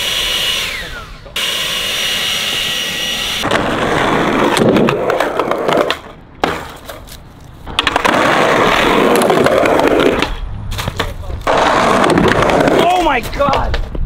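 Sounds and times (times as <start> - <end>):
skateboard wheels rolling on pavement: 0.0 - 14.0
skateboard clicks and clacks: 3.4 - 14.0.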